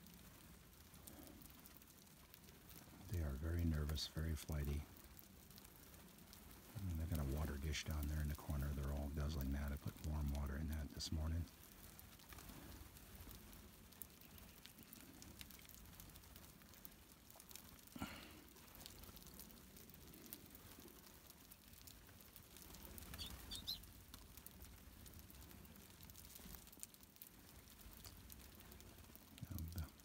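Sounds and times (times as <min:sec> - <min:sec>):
light ticks of finches: 0:00.0 - 0:30.0
short high bird chirps: 0:23.1 - 0:23.8.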